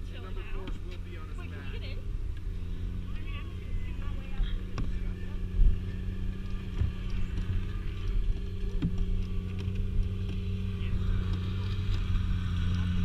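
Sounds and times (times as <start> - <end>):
kayak hull sliding on snow: 5.0 - 13.0.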